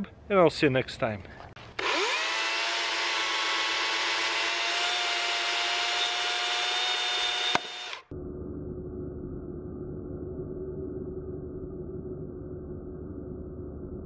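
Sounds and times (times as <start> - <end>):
chainsaw running with high whine: 1.8 - 8.1
low muffled steady hum: 8.1 - 14.0.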